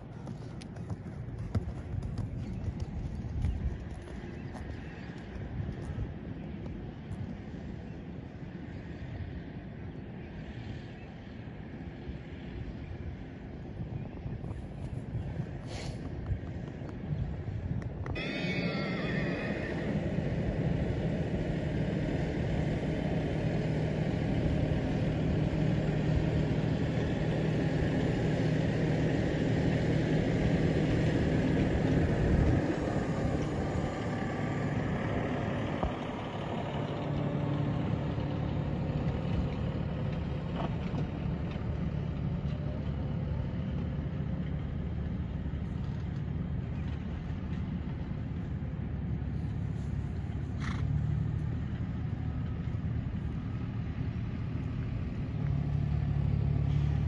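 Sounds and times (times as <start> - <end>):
vehicle engine idling: 13.8 - 57.0.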